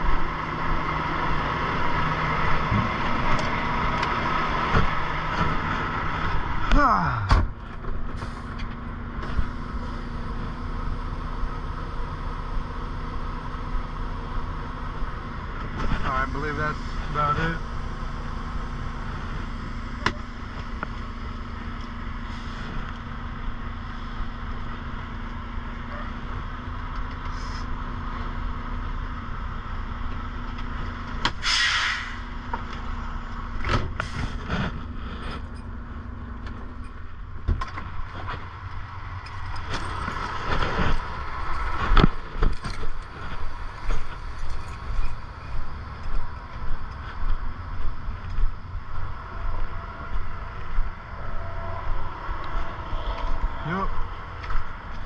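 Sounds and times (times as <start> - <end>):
air brake hiss: 27.3 - 27.7, 31.4 - 32.3.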